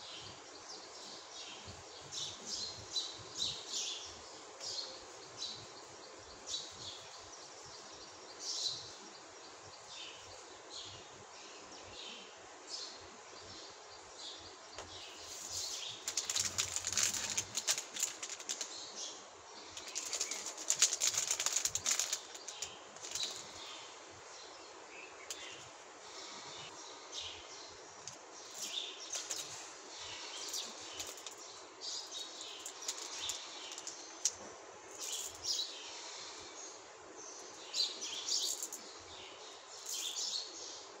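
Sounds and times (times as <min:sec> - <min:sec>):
plastic wrappers crinkling: 0:15.5 - 0:18.8, 0:19.7 - 0:23.6, 0:32.5 - 0:34.4.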